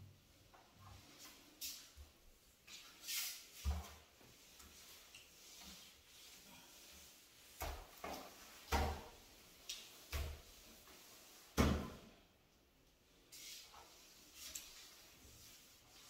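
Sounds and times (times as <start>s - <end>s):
scrub brush bumping tiled walls: 0.5s - 12.2s, 13.3s - 16.0s.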